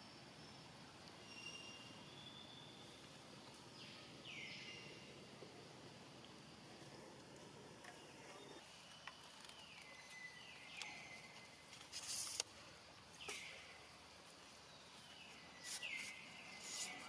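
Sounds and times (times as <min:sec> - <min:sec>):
hissy whistling wildlife calls: 0:00.0 - 0:17.0.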